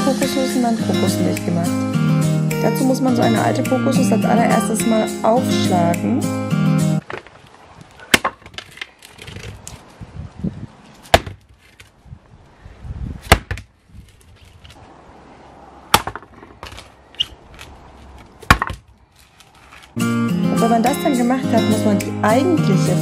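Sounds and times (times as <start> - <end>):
machete chopping coconut husk: 8.1 - 8.8, 11.0 - 11.6, 13.2 - 13.7, 15.9 - 16.9, 18.4 - 18.9.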